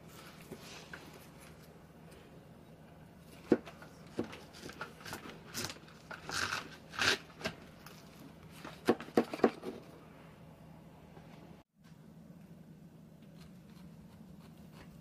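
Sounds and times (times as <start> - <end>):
knife crunching through pineapple: 4.1 - 8.1.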